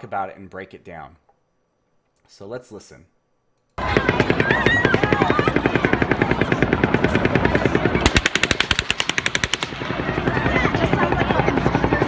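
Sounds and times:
automatic gunfire: 0:03.8 - 0:10.6
closer faster gunfire: 0:03.8 - 0:11.9.

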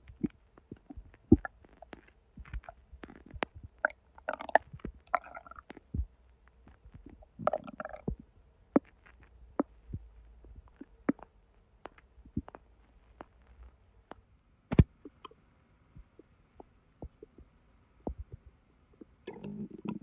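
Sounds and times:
belly gurgling: 0:19.0 - 0:20.0.

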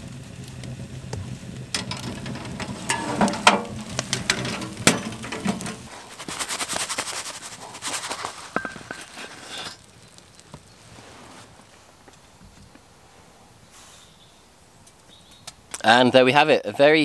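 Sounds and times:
light crackling: 0:00.0 - 0:12.9
cookware knocking and clattering: 0:01.8 - 0:05.9.

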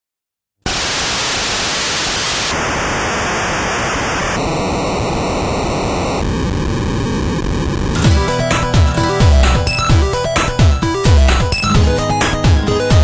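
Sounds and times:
white noise static hiss: 0:00.7 - 0:08.0.

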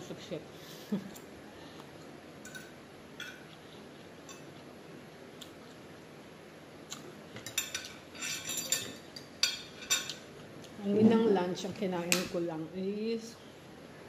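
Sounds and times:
metal fork clinking on plate: 0:02.4 - 0:03.4, 0:07.4 - 0:10.2.

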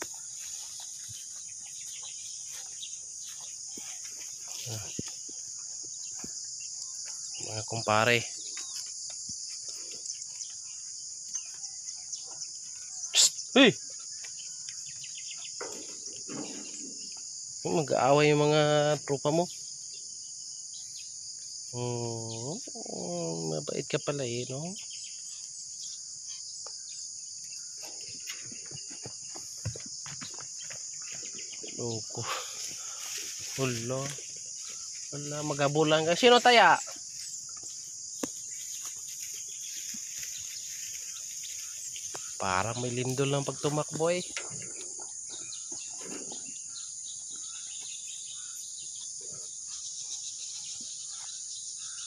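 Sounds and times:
insects shrilling: 0:12.7 - 0:19.6, 0:30.3 - 0:52.0.

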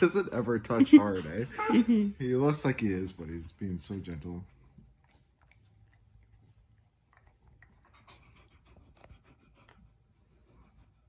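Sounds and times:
puppy panting: 0:04.2 - 0:11.0.

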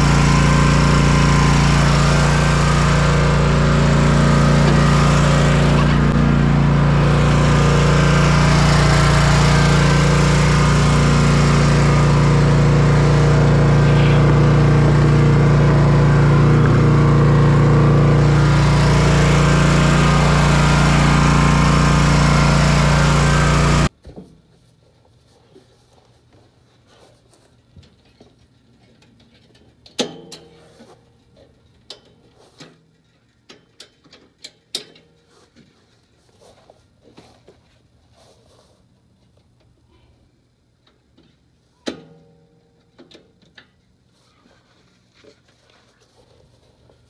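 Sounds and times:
riding mower engine running: 0:00.0 - 0:24.0.

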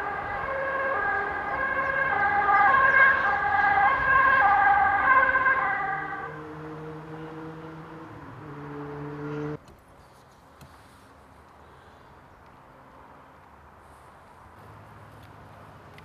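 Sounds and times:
emergency vehicle siren: 0:00.0 - 0:09.6.

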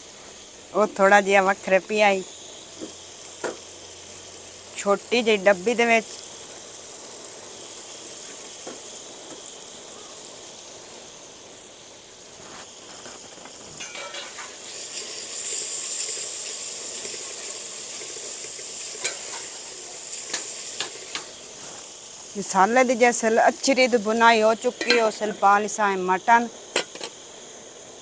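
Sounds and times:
liquid sizzling in a pot: 0:00.0 - 0:28.0
metal spoon clinking on pot: 0:13.8 - 0:14.4.

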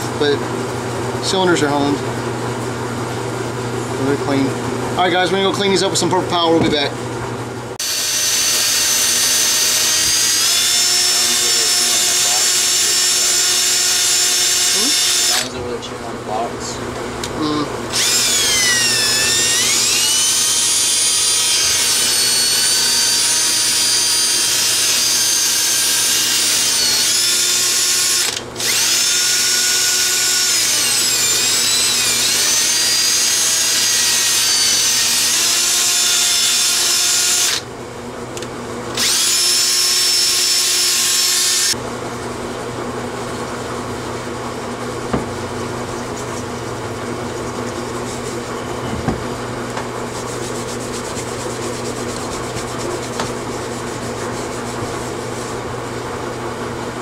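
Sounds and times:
drill spinning wire brush on metal: 0:07.8 - 0:15.6, 0:17.9 - 0:37.7, 0:38.9 - 0:41.8.

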